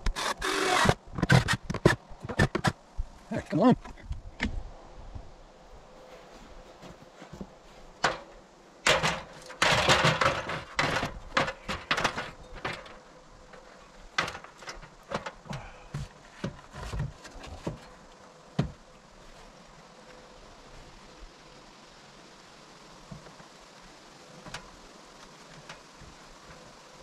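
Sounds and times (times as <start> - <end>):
board bumping ladder and wall: 6.7 - 18.9.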